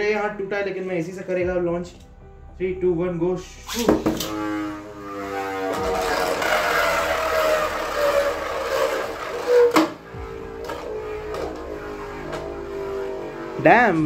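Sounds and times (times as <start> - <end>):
spinning top whine: 3.7 - 14.0
top tip scraping plastic floor: 3.8 - 12.6.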